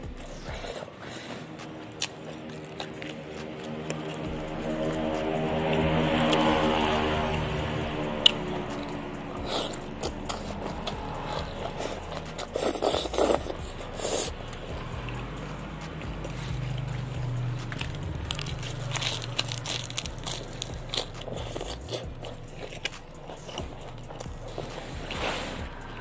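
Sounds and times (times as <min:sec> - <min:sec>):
wet chewing: 0:00.0 - 0:26.0
leaves crackling: 0:15.3 - 0:23.5.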